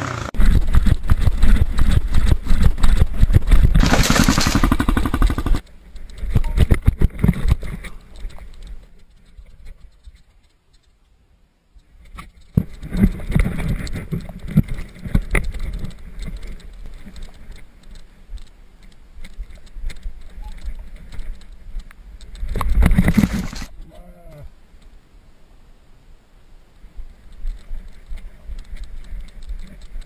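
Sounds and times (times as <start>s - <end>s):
scuffling and rubbing: 22.7s - 23.7s.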